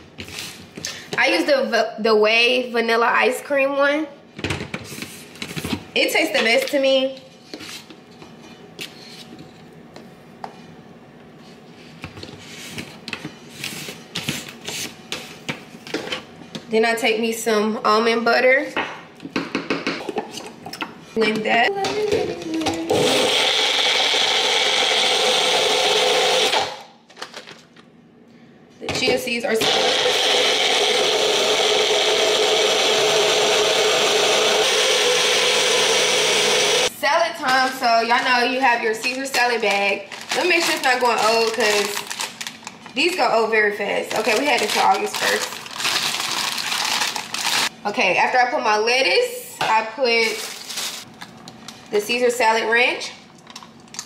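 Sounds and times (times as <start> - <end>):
blender running: 22.5 - 27.0, 29.5 - 36.9, 44.1 - 47.7.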